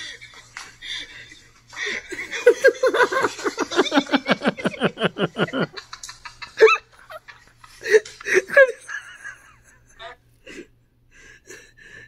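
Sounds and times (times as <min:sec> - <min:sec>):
man laughing hard: 0:01.8 - 0:10.1.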